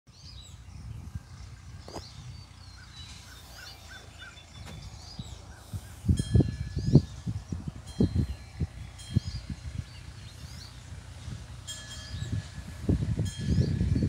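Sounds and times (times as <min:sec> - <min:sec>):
birds chirping: 0:00.1 - 0:14.0
wind gusts on microphone: 0:00.1 - 0:14.0
wind rumble: 0:00.1 - 0:14.0
wind chime ringing: 0:06.1 - 0:09.8, 0:11.6 - 0:14.0.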